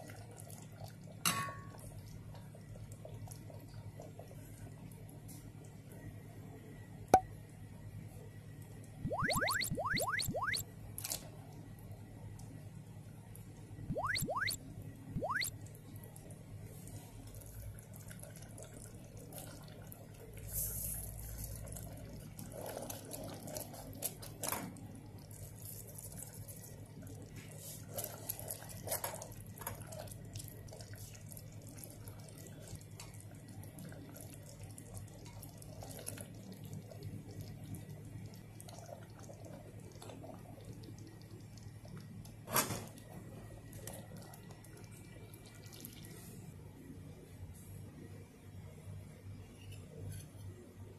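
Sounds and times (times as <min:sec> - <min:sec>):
sauce simmering and bubbling: 0:00.0 - 0:07.0, 0:15.2 - 0:47.6.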